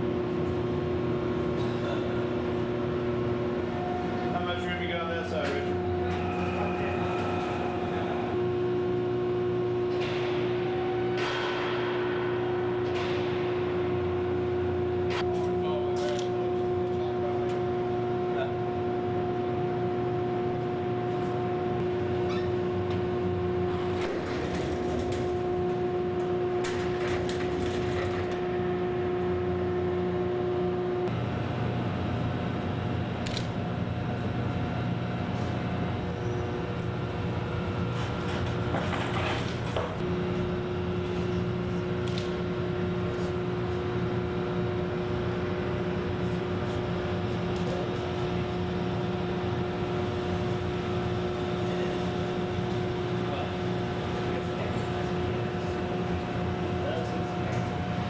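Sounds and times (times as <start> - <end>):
machine hum: 0.0 - 58.0
whining tone: 3.3 - 11.4.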